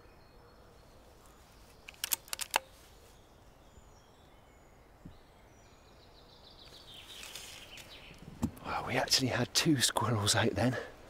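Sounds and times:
faint bird chirps: 0.0s - 8.2s
air rifle clicks: 1.7s - 2.8s.

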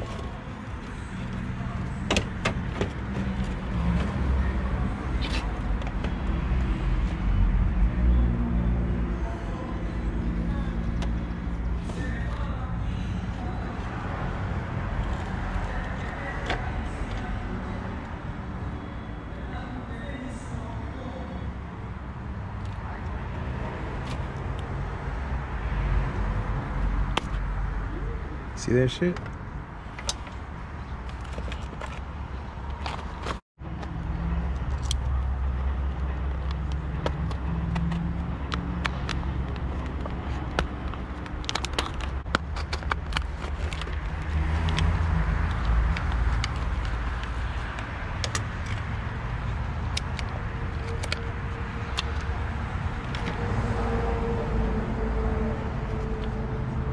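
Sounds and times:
low rumble of road traffic: 0.0s - 56.9s
plastic clicks of bulb handling: 49.9s - 51.3s.

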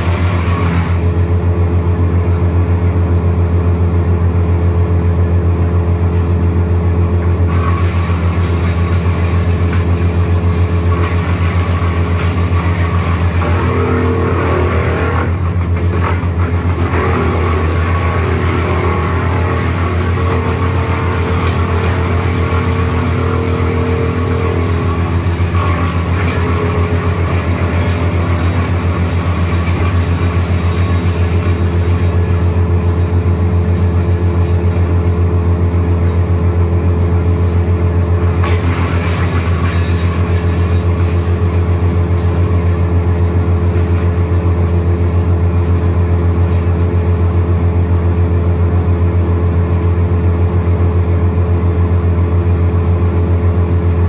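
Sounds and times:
wood chipper engine humming: 0.0s - 54.0s.

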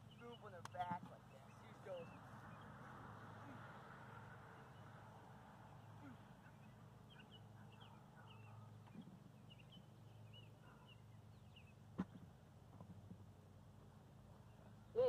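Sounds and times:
birds chirping: 0.0s - 12.6s.

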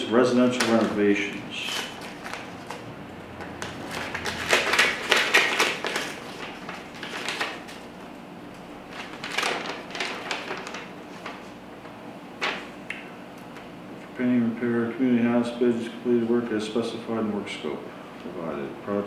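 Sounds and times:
paper crinkling and rustling: 0.4s - 8.0s, 8.6s - 11.6s, 12.4s - 12.7s
paper envelope tearing: 0.5s - 2.8s, 3.4s - 7.9s, 8.9s - 11.4s.

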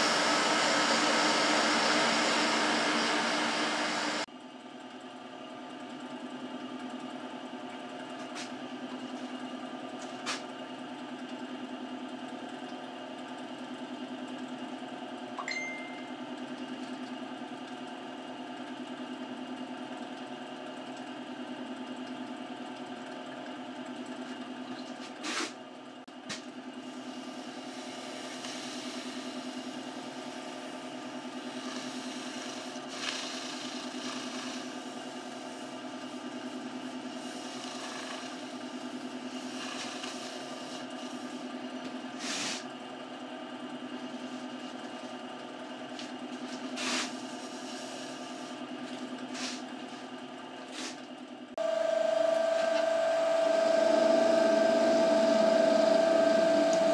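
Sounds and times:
lathe motor humming: 0.0s - 4.3s, 26.7s - 42.2s, 51.6s - 56.9s.

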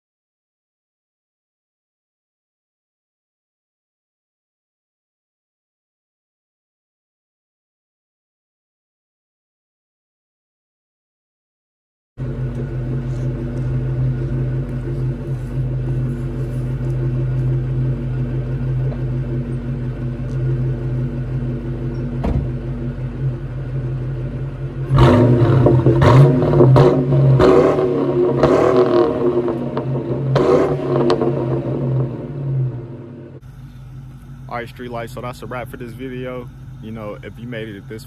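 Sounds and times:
car engine idling and revving: 12.2s - 38.0s.

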